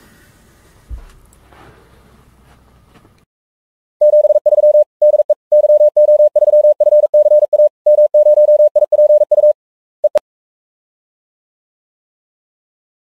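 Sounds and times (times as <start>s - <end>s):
morse code tone pulses: 4.0s - 10.2s.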